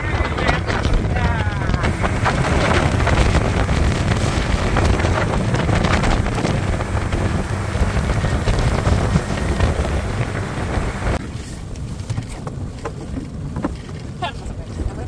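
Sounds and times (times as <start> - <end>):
wind buffeting the microphone: 0.0 - 15.0
water hissing around a hull: 1.7 - 11.7.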